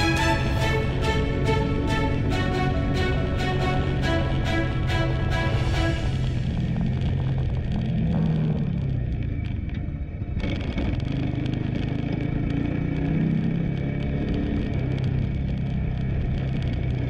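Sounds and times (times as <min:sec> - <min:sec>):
motorcycle engine running: 0:05.4 - 0:17.0.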